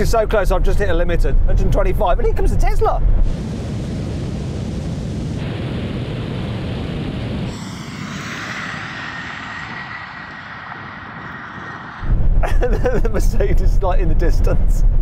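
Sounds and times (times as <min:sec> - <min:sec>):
rushing wind and tyre noise: 0:00.0 - 0:15.0
faint steady whine: 0:03.1 - 0:14.3.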